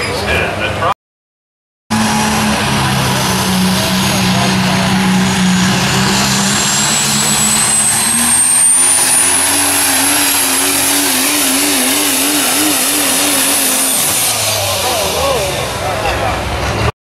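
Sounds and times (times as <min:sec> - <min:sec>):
diesel pulling truck engine: 0:01.9 - 0:16.9
high turbo whistle: 0:06.2 - 0:15.3.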